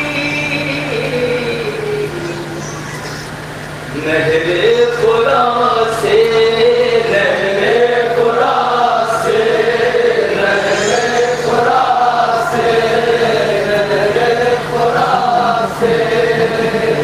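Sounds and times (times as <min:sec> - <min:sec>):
men chanting a lament: 0:04.0 - 0:17.0.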